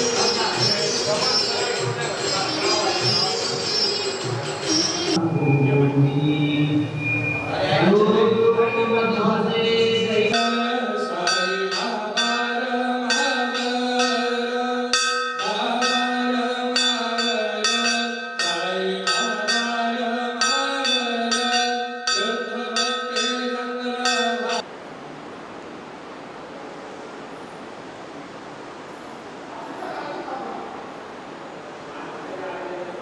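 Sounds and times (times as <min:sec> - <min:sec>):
melody sung in long held notes: 0:05.0 - 0:24.6
metal bell struck in steady beat: 0:10.3 - 0:24.6.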